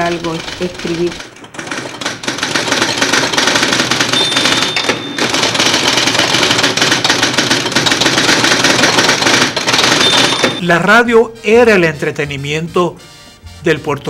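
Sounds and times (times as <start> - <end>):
typewriter key clacks: 0.0 - 10.6
steady high ring: 4.2 - 5.6.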